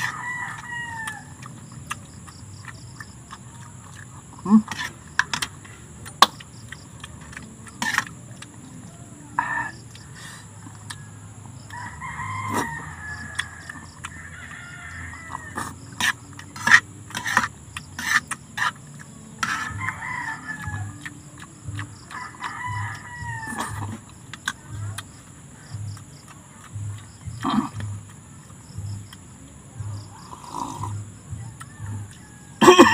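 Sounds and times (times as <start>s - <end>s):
rooster crowing: 0.0s - 1.5s, 10.6s - 16.0s, 19.4s - 24.0s, 30.9s - 32.9s.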